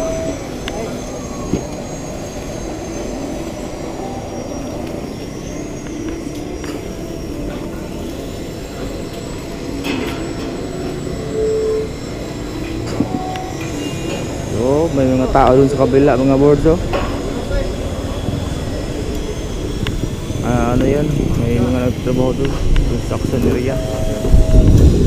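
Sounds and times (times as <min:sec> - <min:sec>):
brief pitched tone: 0:00.0 - 0:15.6, 0:23.2 - 0:24.9
low rumbling background noise: 0:00.0 - 0:25.0.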